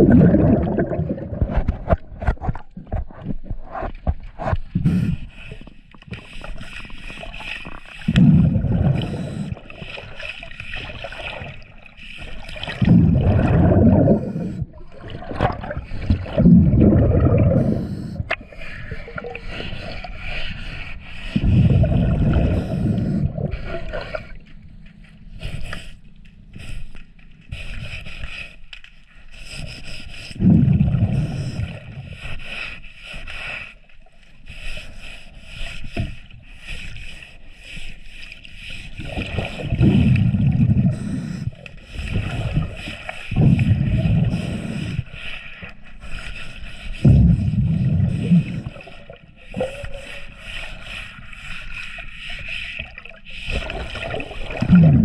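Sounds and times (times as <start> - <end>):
underwater exhaled bubbles gurgling: 0.0 - 5.3, 6.2 - 20.4, 21.2 - 24.4, 30.4 - 32.2, 39.0 - 45.2, 46.8 - 50.6, 52.8 - 55.0.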